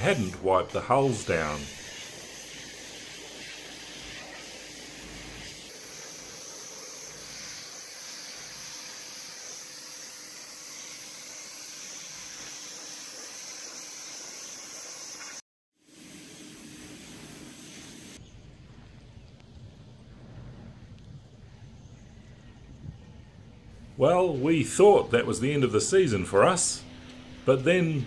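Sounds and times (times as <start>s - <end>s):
pressure washer spraying: 0.0s - 15.4s, 16.0s - 18.2s.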